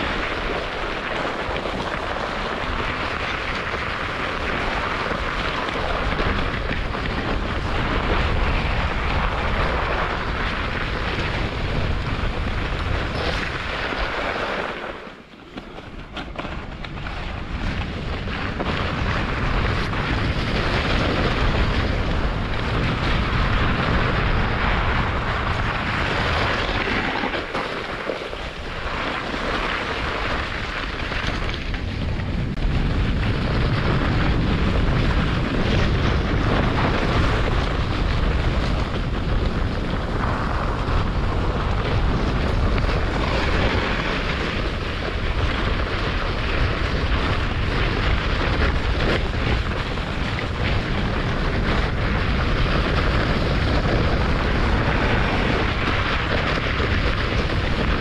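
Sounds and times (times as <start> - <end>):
wind buffeting microphone: 0.0 - 14.7, 15.6 - 58.0
sled runners rushing over snow: 0.0 - 58.0.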